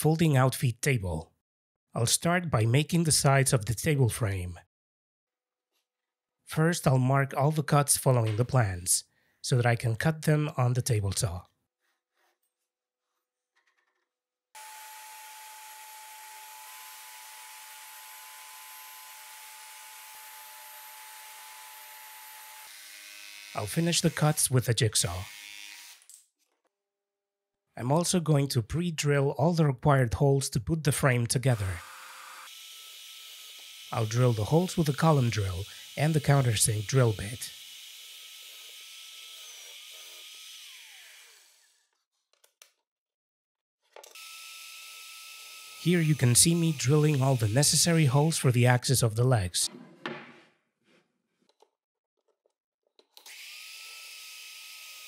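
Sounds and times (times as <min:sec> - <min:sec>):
table saw cutting plywood: 0:14.6 - 0:24.5, 0:31.5 - 0:41.9, 0:44.2 - 0:48.3.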